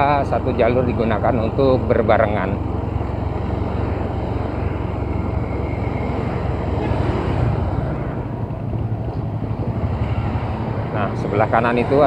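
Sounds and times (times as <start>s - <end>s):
motorcycle engine rumble: 0.0s - 12.0s.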